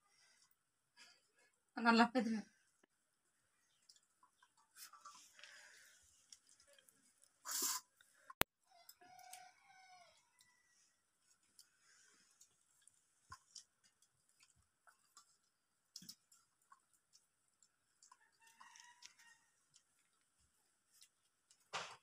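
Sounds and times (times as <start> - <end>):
faint chicken clucking: 8.6 - 12.2, 18.0 - 20.2.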